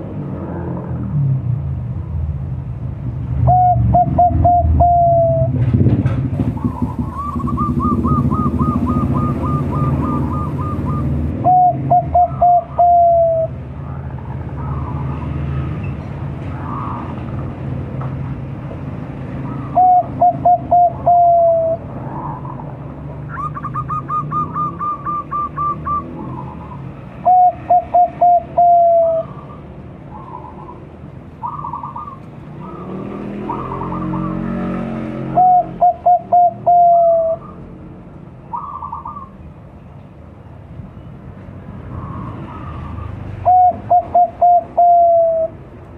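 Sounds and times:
dove cooing: 3.4s - 5.6s, 6.4s - 14.0s, 19.4s - 22.6s, 23.3s - 30.8s, 31.4s - 37.7s, 38.5s - 39.3s, 42.0s - 45.6s
faint bird calls: 6.5s - 17.2s, 23.3s - 34.6s, 38.4s - 39.5s.

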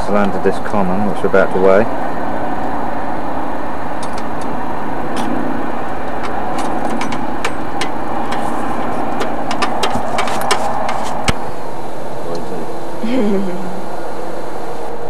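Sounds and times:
engine-like drone: 0.0s - 15.0s
scale clicking and knocking: 6.1s - 11.4s.

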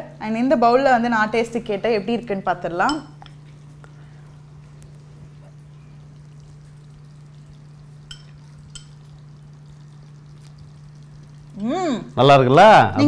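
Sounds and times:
steady low hum: 0.0s - 13.0s
spoon clicking on ceramic bowl: 2.9s - 3.4s, 8.1s - 9.0s.

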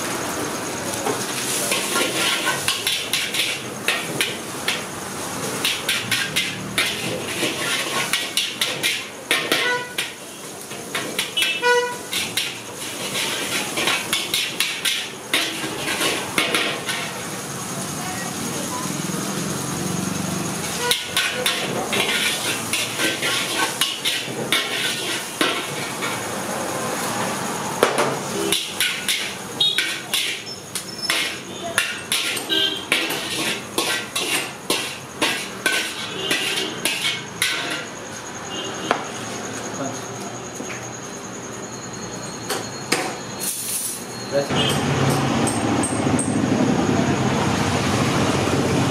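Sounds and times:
metal spatula scraping a wok: 1.4s - 17.4s, 20.6s - 26.4s, 28.3s - 38.5s, 43.4s - 44.7s
vehicle horn toot: 9.5s - 10.0s, 11.4s - 12.1s, 20.8s - 21.2s, 29.6s - 30.0s, 31.5s - 32.9s, 36.0s - 36.8s, 38.5s - 39.1s, 44.4s - 44.9s.

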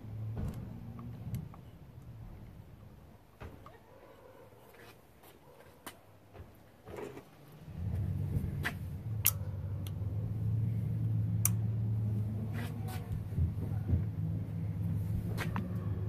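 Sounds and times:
steady low hum: 7.4s - 16.0s
sharp metallic clicks: 11.4s - 11.7s.

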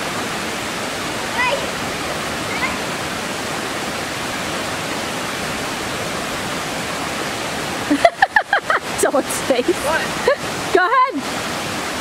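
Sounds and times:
creek waterfall over rocks: 0.0s - 12.0s
person speaking: 9.0s - 10.9s.

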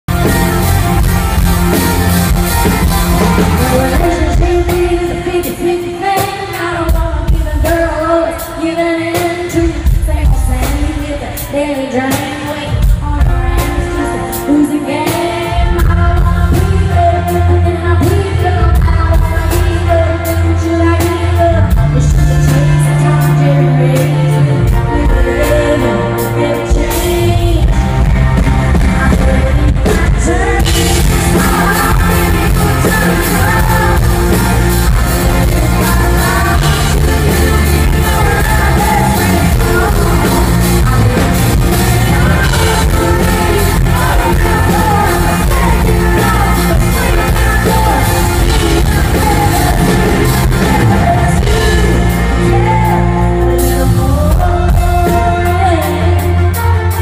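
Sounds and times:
bass: 0.0s - 5.8s, 12.7s - 57.0s
drums: 0.0s - 57.0s
woman singing into microphone: 2.8s - 57.0s.

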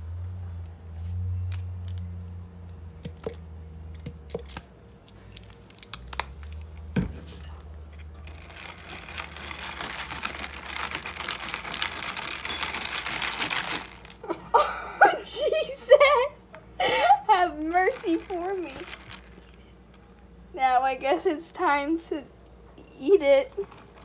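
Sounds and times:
cereal crunching and scraping: 8.0s - 14.2s, 17.7s - 20.1s, 23.5s - 24.0s.

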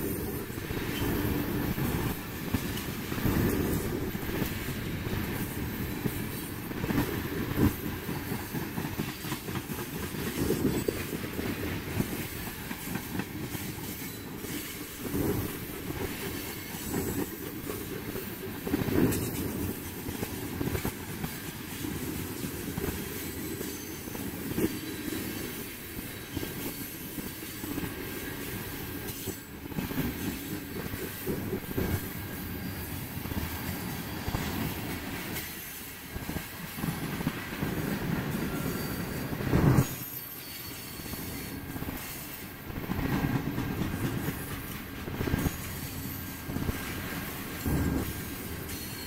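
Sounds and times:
train wheels rumbling on rail: 0.0s - 49.0s.

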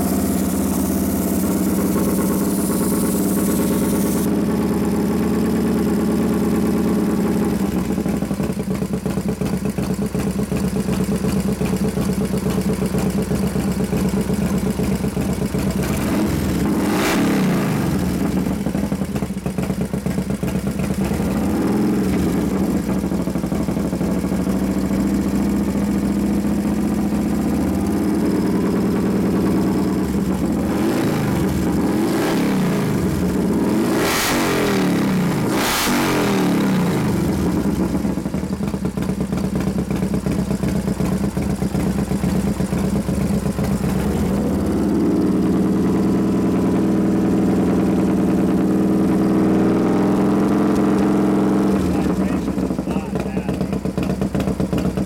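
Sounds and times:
throttle blips revving engine: 0.0s - 7.8s, 13.9s - 19.2s, 20.8s - 38.7s, 42.2s - 55.0s
motorcycle engine idling: 0.0s - 55.0s.

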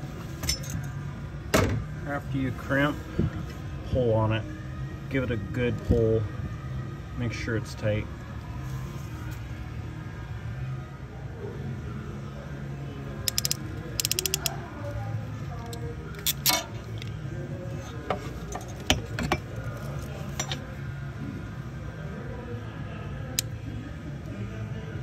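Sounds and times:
ratcheting crimp tool clicking: 13.2s - 14.6s.

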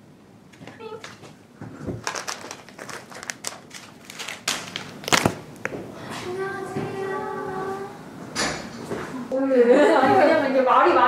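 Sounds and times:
handling rustle: 2.0s - 5.3s.

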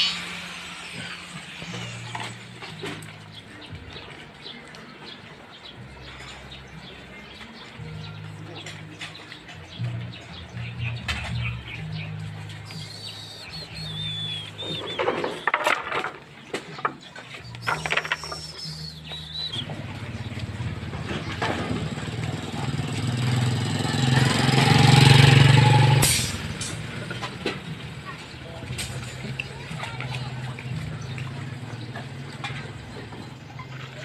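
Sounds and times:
bird chirps: 3.2s - 15.6s, 17.0s - 20.5s
vehicle engine passing: 18.4s - 34.0s.

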